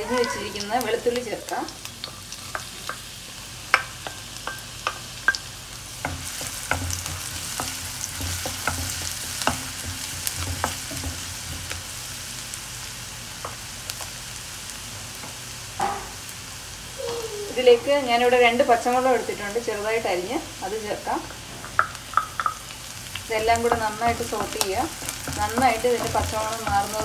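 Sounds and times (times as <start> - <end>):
garlic sizzling in hot oil: 0.0 - 27.0.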